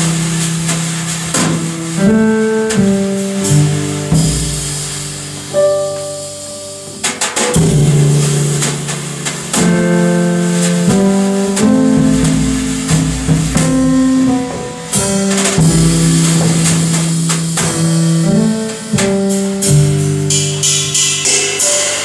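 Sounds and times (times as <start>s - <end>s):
double bass: 0.0s - 5.5s, 7.6s - 18.6s
cymbal strikes: 0.0s - 22.0s
light drum accents: 0.0s - 22.0s
piano chords: 0.0s - 22.0s.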